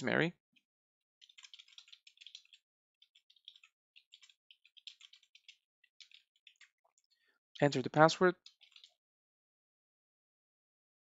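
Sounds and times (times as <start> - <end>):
faint keyboard typing: 1.2 - 9.0.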